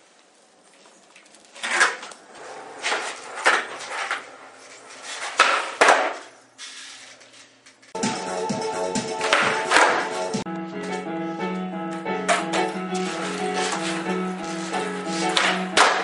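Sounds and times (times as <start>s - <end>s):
skateboard wheels rolling on concrete: 0.0s - 16.0s
skateboard clacking on floor: 1.2s - 6.3s, 9.2s - 10.2s, 12.3s - 16.0s.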